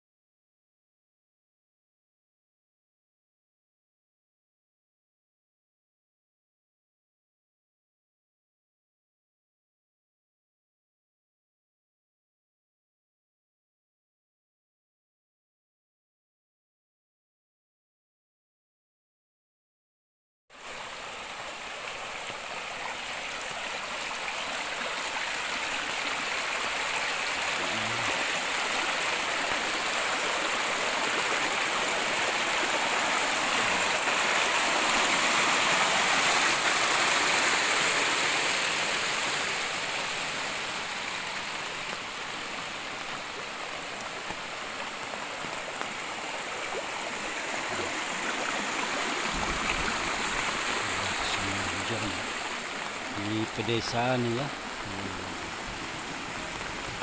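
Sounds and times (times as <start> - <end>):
water rushing down a rocky ditch: 20.6 - 57.0.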